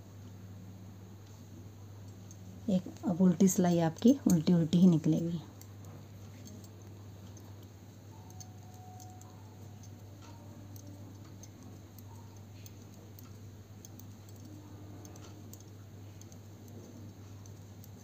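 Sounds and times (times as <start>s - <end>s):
steady low hum: 0.0s - 18.0s
knitting needles clicking: 3.9s - 18.0s.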